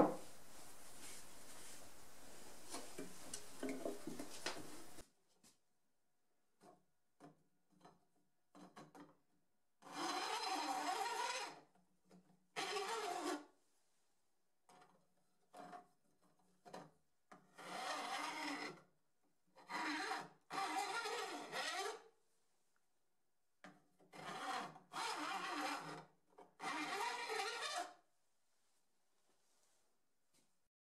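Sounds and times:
file rasping along saw teeth: 9.8s - 11.6s, 12.6s - 13.4s, 19.6s - 22.0s, 24.1s - 26.0s, 26.6s - 28.0s.

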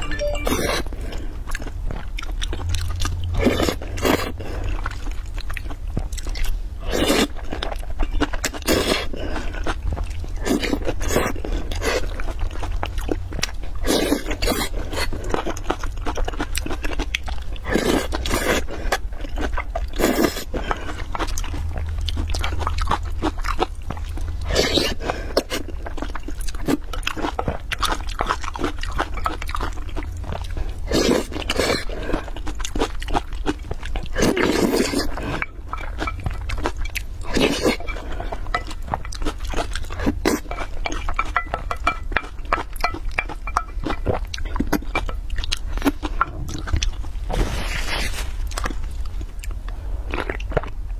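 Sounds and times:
slurping and chewing noodles: 0.0s - 50.9s.

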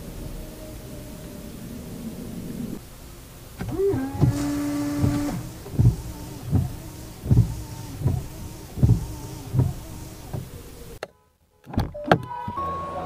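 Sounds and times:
wiper motor whine: 0.0s - 11.0s
wiper blades thumping: 1.2s - 11.0s.

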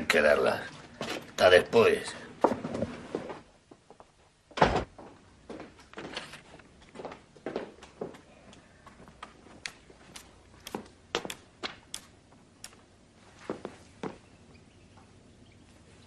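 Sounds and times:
door shutting with heavy thud: 4.6s - 5.0s.

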